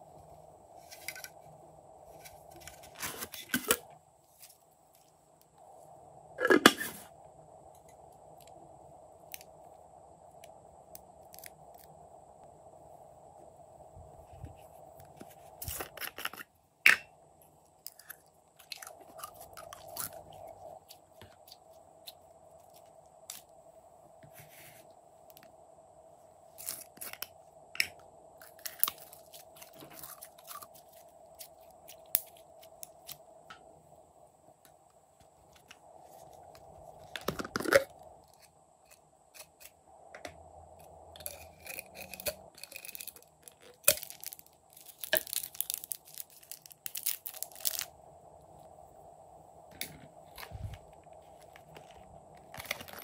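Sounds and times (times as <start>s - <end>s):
slime crackling and popping: 42.6s - 47.9s.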